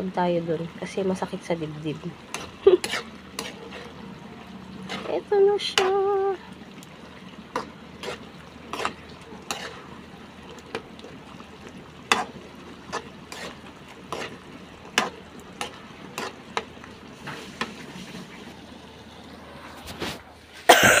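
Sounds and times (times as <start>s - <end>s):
sauce simmering sizzle: 0.0s - 19.6s
spoon scraping metal pan: 2.2s - 4.0s, 4.8s - 6.0s, 7.5s - 9.9s, 12.0s - 18.2s.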